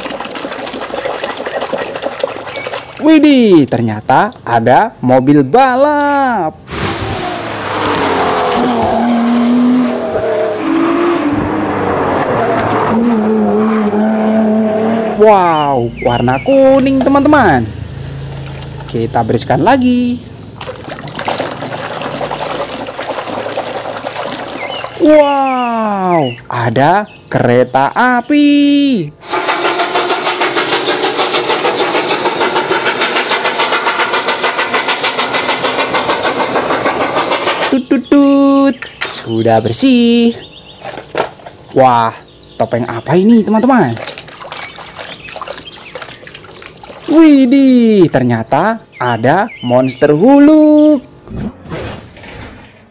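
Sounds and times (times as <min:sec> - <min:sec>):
race car engine at speed: 0:06.7 - 0:15.2
steam locomotive chuffing: 0:29.2 - 0:38.4.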